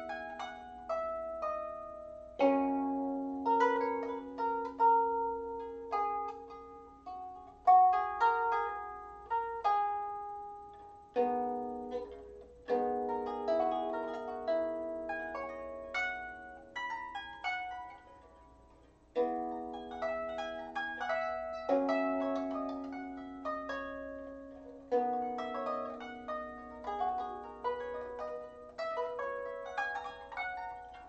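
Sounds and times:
harp plucked notes: 0:00.0 - 0:31.0
low harp chords: 0:00.0 - 0:31.0.

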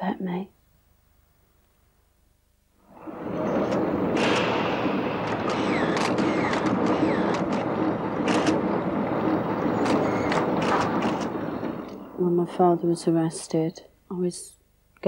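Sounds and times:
camera shutter clicks: 0:05.5 - 0:07.6, 0:08.2 - 0:08.6.

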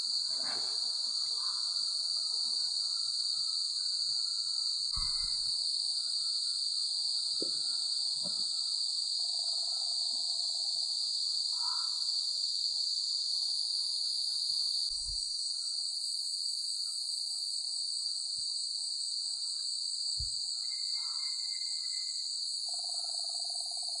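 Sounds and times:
crickets and insects droning: 0:00.0 - 0:24.0
dull low thumps: 0:05.0 - 0:05.4.

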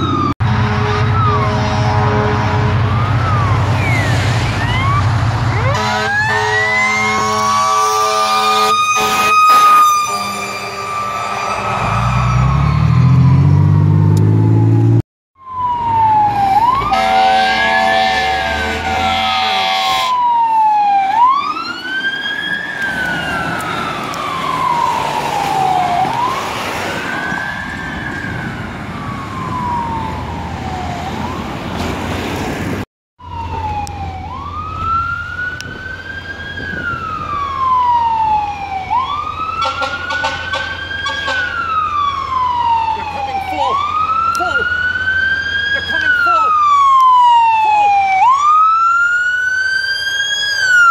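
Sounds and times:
fire truck sirens wailing: 0:00.0 - 0:32.4, 0:33.2 - 0:50.9
air horn blasts: 0:00.4 - 0:03.0, 0:05.6 - 0:12.1, 0:16.9 - 0:20.2, 0:39.6 - 0:41.5.

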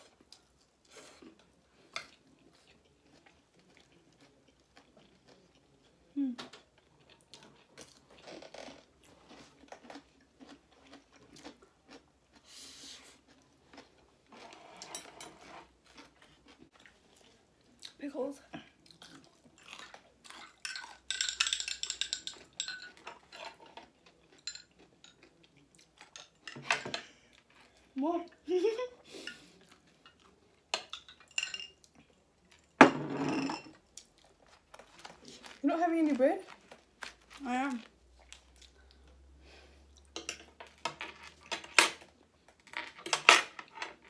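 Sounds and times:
cutlery clinking on plates: 0:14.4 - 0:15.5, 0:19.6 - 0:25.3, 0:26.0 - 0:27.1, 0:29.2 - 0:31.8, 0:32.6 - 0:33.8, 0:40.2 - 0:42.1, 0:42.7 - 0:44.0
fork and knife clinking on plate: 0:20.6 - 0:23.6.

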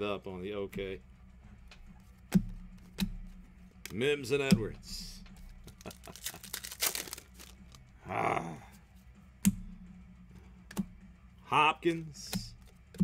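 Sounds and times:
cards clicking and sliding: 0:05.4 - 0:07.8
cards rustling: 0:05.4 - 0:07.8.

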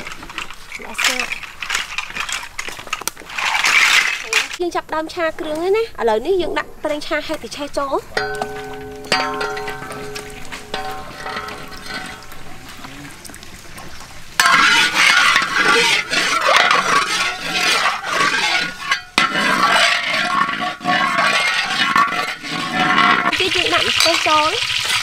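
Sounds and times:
metallic ringing: 0:07.1 - 0:12.5, 0:14.4 - 0:23.3
metal spatula scraping: 0:07.6 - 0:12.6, 0:14.4 - 0:25.0
hot oil sizzling in a wok: 0:17.0 - 0:25.0.

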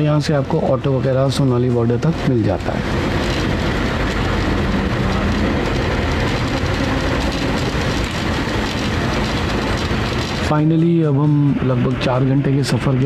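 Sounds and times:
bus engine drone: 0:00.0 - 0:13.0
road and body noise: 0:00.0 - 0:13.0.

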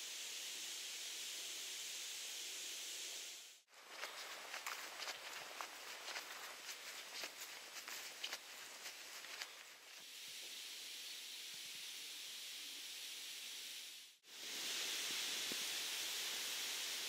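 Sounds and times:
outdoor ambient hiss: 0:00.0 - 0:17.0
footsteps on dirt path: 0:03.7 - 0:10.0.

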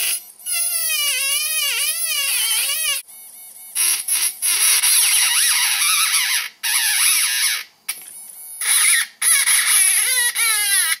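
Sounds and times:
electric motor mechanical buzz: 0:00.0 - 0:06.0.

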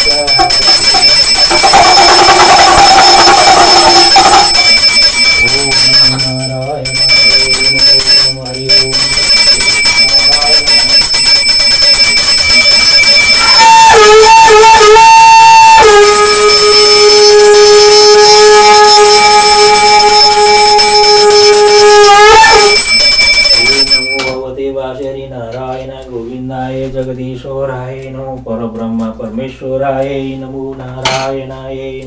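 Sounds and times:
conch shell blown: 0:00.0 - 0:05.2, 0:11.9 - 0:23.8
hand bell ringing: 0:00.0 - 0:14.9, 0:15.8 - 0:24.4.

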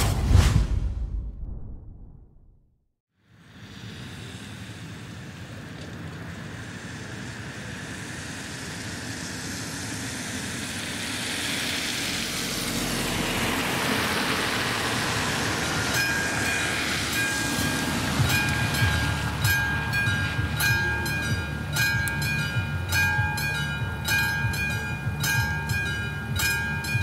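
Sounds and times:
car tyres hissing on wet asphalt: 0:03.2 - 0:20.8
crossing warning bell ringing: 0:14.2 - 0:27.0.

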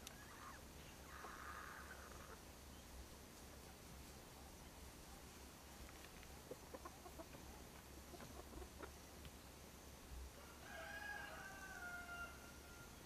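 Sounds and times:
chickens clucking: 0:00.0 - 0:02.5, 0:03.4 - 0:09.3
drawn-out chicken call: 0:00.1 - 0:02.5, 0:10.4 - 0:13.0.

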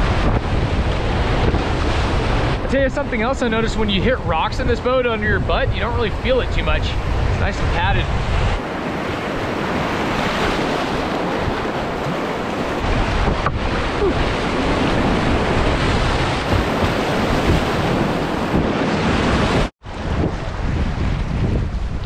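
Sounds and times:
whitewater rushing and splashing: 0:05.2 - 0:20.3.

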